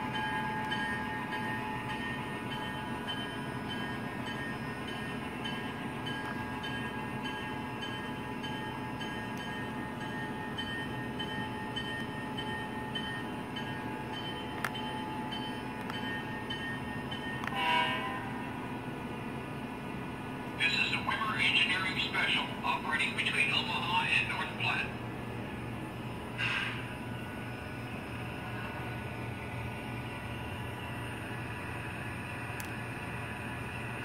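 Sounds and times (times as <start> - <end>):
train horn blast: 17.4 - 18.6
hum of motors and wheels: 24.8 - 34.0.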